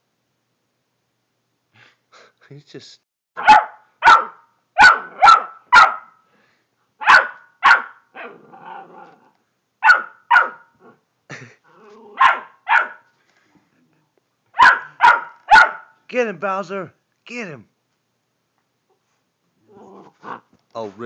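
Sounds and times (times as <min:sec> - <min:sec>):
dog barking: 0:03.4 - 0:06.2, 0:07.0 - 0:08.4, 0:09.8 - 0:10.7, 0:12.2 - 0:13.1, 0:14.5 - 0:16.0.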